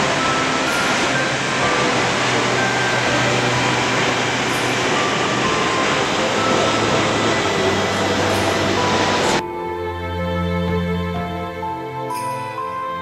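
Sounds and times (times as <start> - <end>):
waterfall roaring: 0.0 - 9.4.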